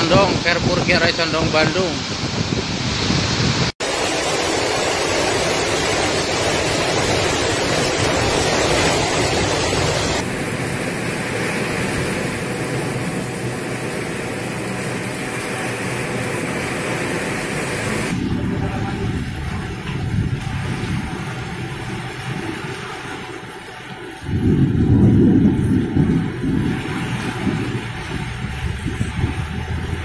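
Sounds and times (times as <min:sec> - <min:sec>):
heavy rain: 0:00.0 - 0:30.0
strong wind: 0:00.0 - 0:30.0.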